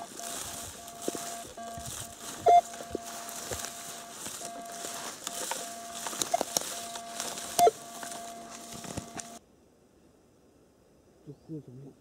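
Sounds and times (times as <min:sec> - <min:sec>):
metal detector beeps: 0:00.0 - 0:09.4
metal detector steady tone: 0:00.0 - 0:09.4
scattered clicks: 0:00.0 - 0:09.4.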